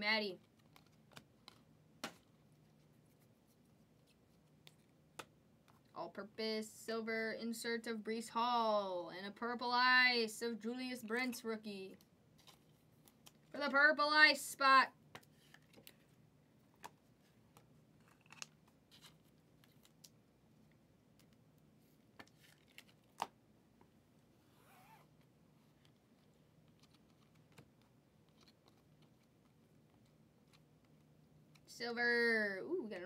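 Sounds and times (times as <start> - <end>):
faint clicks and taps: 0.4 - 6.0, 15.1 - 24.0, 25.8 - 31.7.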